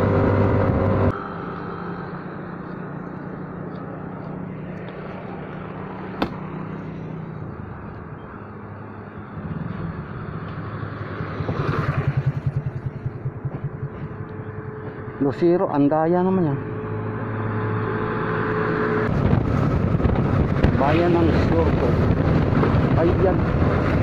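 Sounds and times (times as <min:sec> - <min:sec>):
motorcycle engine slowing: 0:00.0 - 0:24.0.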